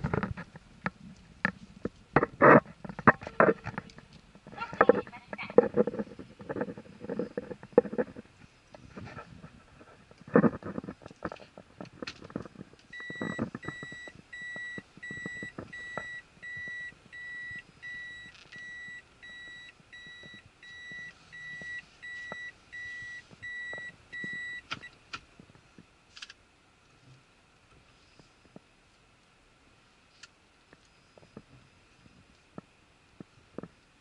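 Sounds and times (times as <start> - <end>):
car reverse warning beeps: 12.9 - 25.0.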